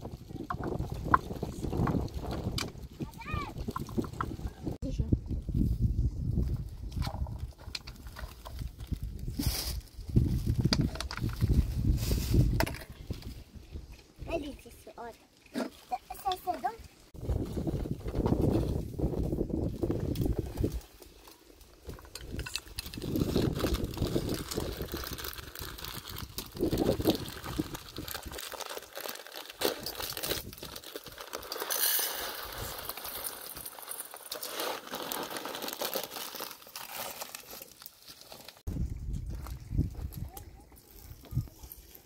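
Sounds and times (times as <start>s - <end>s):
clinks and handling knocks: 21.8s - 23.1s
plastic packet crinkling: 22.3s - 38.7s.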